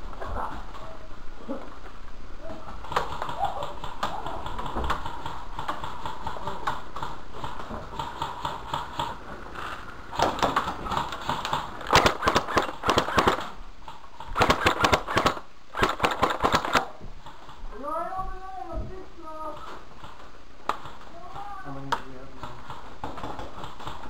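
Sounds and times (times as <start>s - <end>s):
airsoft guns firing bursts: 10.1s - 13.6s, 14.2s - 16.9s.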